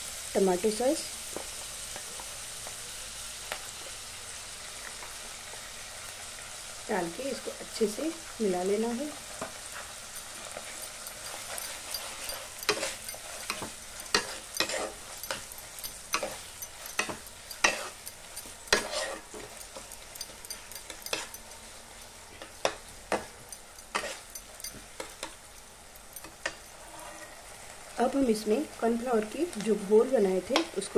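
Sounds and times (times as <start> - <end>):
low sizzle: 0.0 - 30.9
metal spatula scraping a pan: 9.2 - 27.6.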